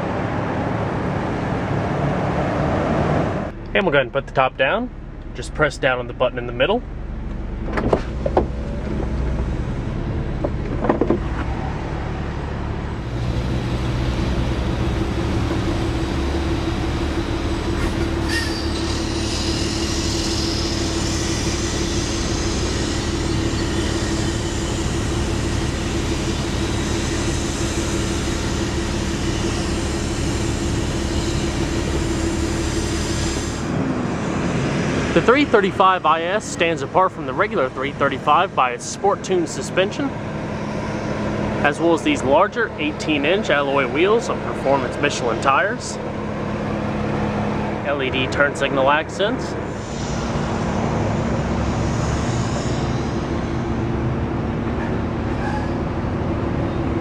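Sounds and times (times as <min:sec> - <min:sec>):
low rumble: 0:00.0 - 0:18.0
roof motor humming: 0:00.0 - 0:57.0.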